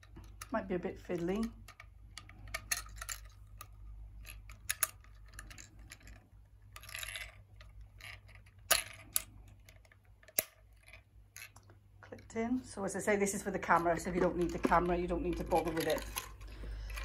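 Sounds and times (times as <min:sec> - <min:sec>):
plastic clicks and scrapes: 0:00.0 - 0:11.7, 0:13.7 - 0:17.0.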